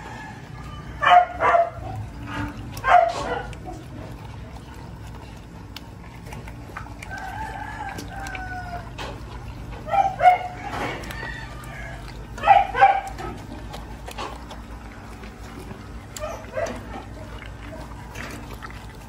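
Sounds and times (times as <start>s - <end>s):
rooster crowing: 0.0s - 1.6s, 7.0s - 9.2s, 9.9s - 12.4s.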